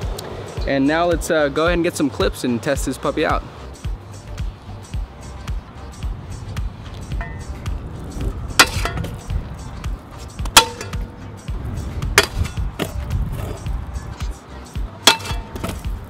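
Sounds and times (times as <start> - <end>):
background music: 0.0 - 16.0
scooter clacking on metal rail: 8.5 - 11.2, 12.1 - 13.6, 15.0 - 16.0.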